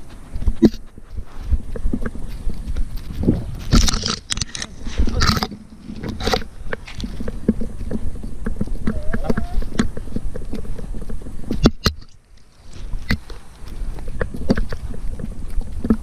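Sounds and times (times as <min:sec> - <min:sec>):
dog paws thudding: 0:00.0 - 0:12.0
stalks rustling against camera: 0:00.0 - 0:16.0.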